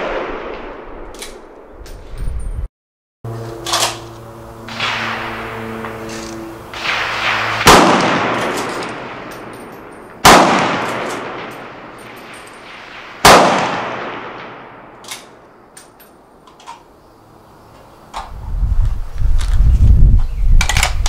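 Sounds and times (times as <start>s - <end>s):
rifle shots echoing: 0.0s - 1.5s, 3.7s - 15.6s.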